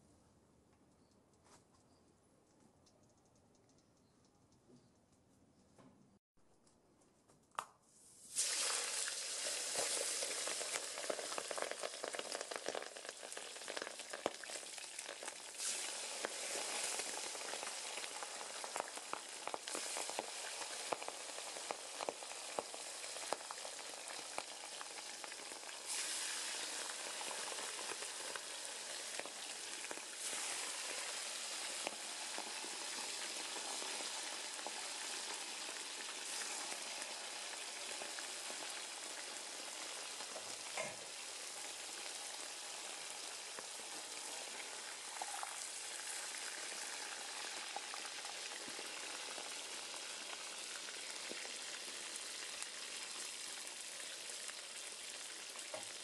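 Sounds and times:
chicken sizzling in hot oil: 8.2 - 56.0
oil crackling and spitting: 8.3 - 37.4.

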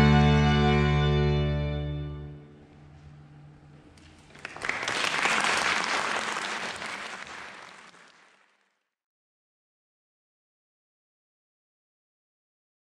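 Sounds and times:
string ensemble low note: 0.0 - 4.2
audience applause: 4.1 - 8.8.

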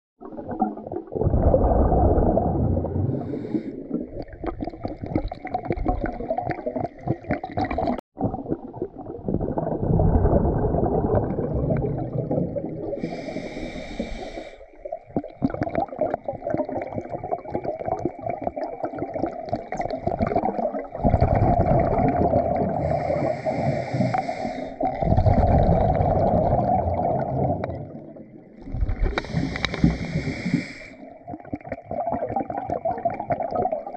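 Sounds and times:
muffled underwater river current: 0.2 - 33.9.

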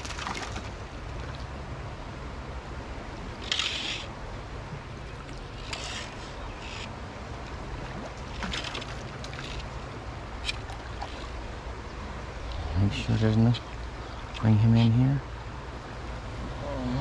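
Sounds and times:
water splashes: 0.0 - 1.6, 4.8 - 14.6
stream flowing: 0.0 - 17.0.

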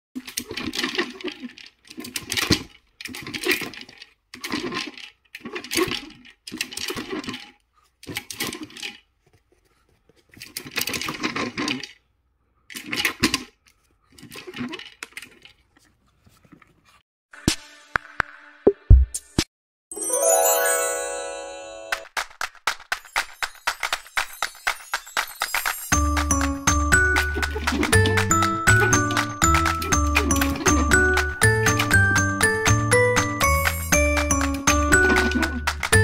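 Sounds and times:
pellets rattling in plastic toy: 23.0 - 36.0.

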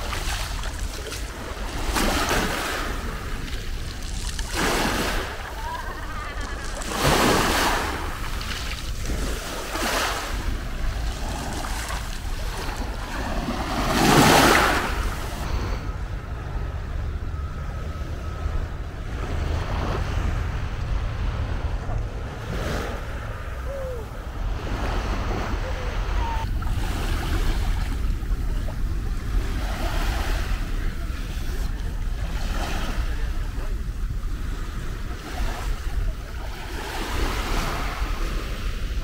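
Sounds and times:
waves washing on pebble beach: 0.0 - 15.4
wind rumble on microphone: 0.0 - 39.0.

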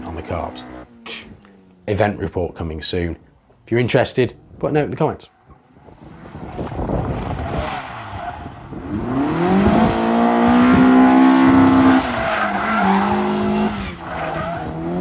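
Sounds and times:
car engine revving hard: 6.1 - 15.0.

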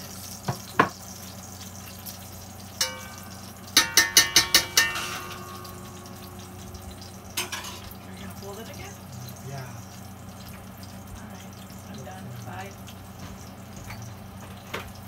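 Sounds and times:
metal utensil clinking on cookware: 2.8 - 6.2, 7.4 - 7.9.

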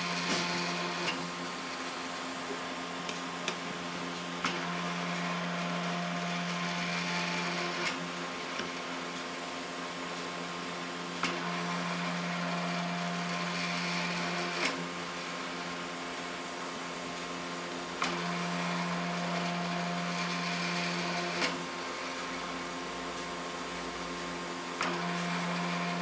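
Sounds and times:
stepper motor hum and whine: 0.0 - 1.9, 23.8 - 26.0
printer sharp click: 0.1 - 1.3, 14.6 - 14.8.

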